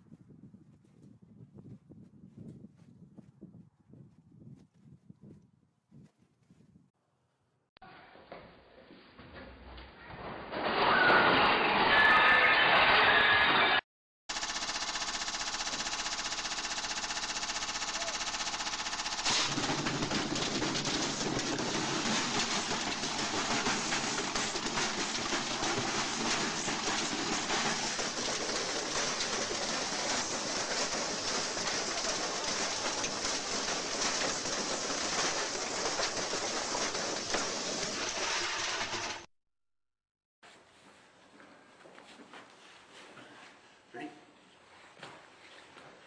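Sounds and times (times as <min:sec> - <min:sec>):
washing machine banging and rattling: 0:19.3 - 0:39.2.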